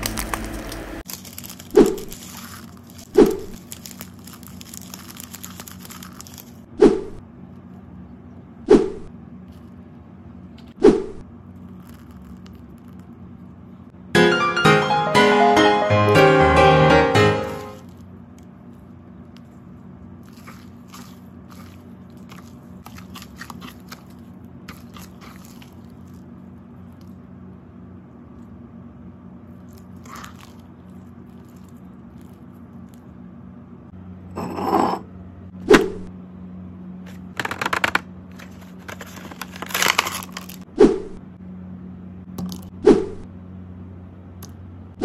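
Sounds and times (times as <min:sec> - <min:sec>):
slime crackling and popping: 0:00.0 - 0:06.6
plastic package crunching: 0:00.0 - 0:06.7, 0:11.6 - 0:13.0, 0:20.2 - 0:26.2, 0:37.1 - 0:40.7.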